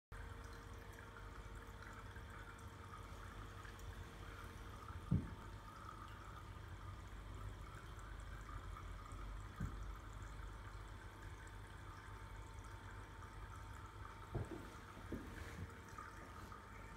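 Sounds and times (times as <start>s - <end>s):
water trickling in aquarium: 0.1s - 16.9s
soft low thumps: 5.0s - 5.4s.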